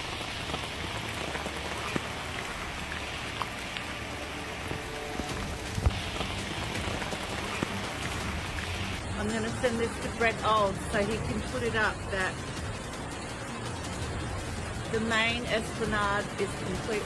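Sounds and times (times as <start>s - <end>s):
creek rushing over boulder: 0.0s - 10.8s.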